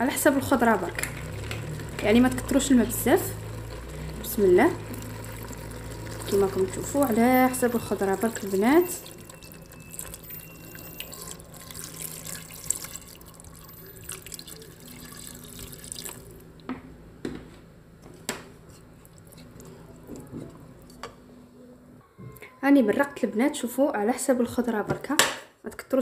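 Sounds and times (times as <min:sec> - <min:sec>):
water pouring into a pot: 0:00.2 - 0:16.4.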